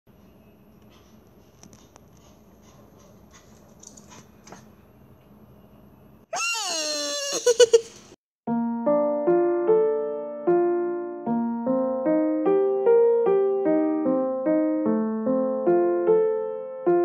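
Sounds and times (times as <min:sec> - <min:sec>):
high-pitched laugh-like sound effect: 0:06.3 - 0:08.0.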